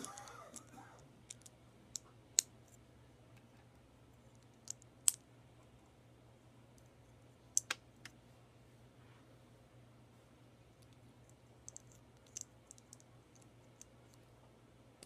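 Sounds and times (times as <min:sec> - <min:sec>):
plastic lego pieces clicking: 0:01.3 - 0:02.5, 0:11.7 - 0:13.9.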